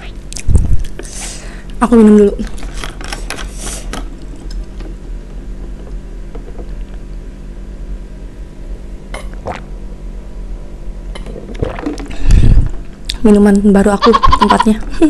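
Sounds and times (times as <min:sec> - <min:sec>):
steady low hum: 0:00.0 - 0:15.0
person gulping water: 0:09.1 - 0:09.7, 0:11.1 - 0:12.9.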